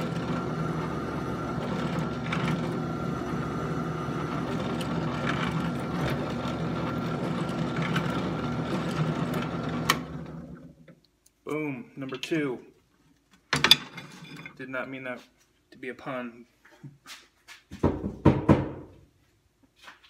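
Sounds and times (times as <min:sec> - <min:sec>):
drill press drilling steel: 0:00.0 - 0:10.7.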